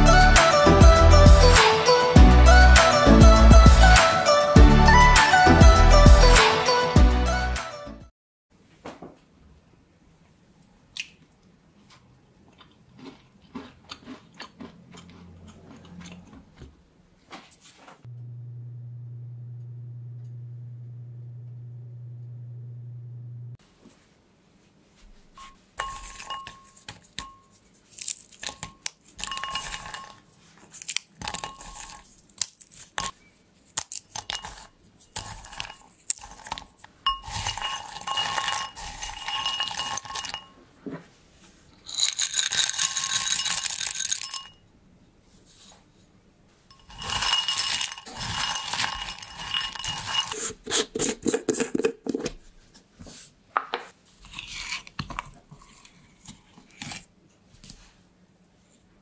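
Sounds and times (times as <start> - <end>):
nuts clinking against glass: 25.8 - 30.2, 37.1 - 40.6, 41.8 - 44.6, 46.7 - 50.4
nuts crackling as crushed: 27.9 - 29.9, 30.6 - 34.4, 35.1 - 36.9, 41.9 - 44.4.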